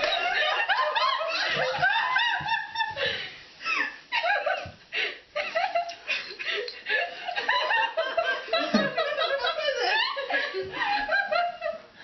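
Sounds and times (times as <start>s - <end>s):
people laughing: 0.0s - 11.9s.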